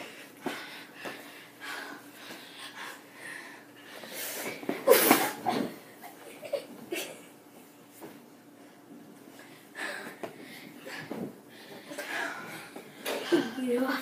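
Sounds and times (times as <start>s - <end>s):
breathing: 0.0s - 4.6s, 9.3s - 13.6s.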